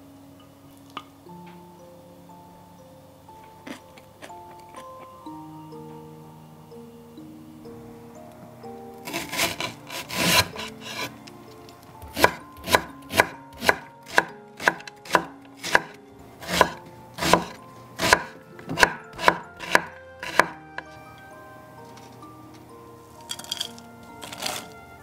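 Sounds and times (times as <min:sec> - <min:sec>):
knife slicing onion: 0:09.0 - 0:11.1, 0:12.0 - 0:20.6, 0:24.2 - 0:24.8.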